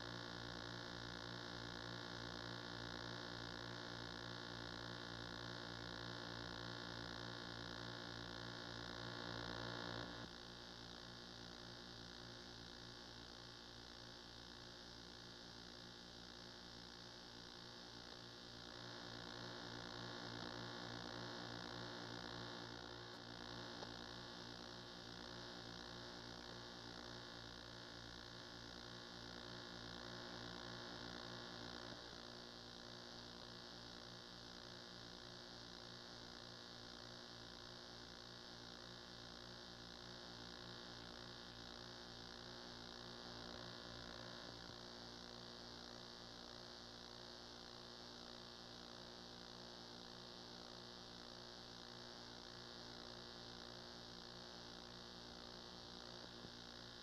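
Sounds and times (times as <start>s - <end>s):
electrical mains hum: 0.0s - 57.0s.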